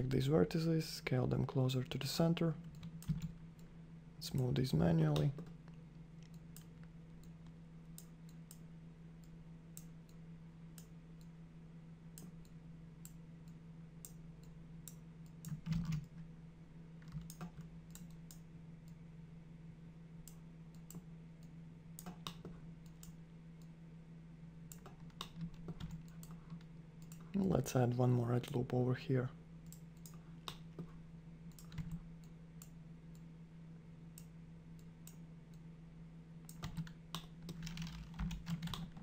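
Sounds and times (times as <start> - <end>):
low electrical hum: 0.0 - 39.0.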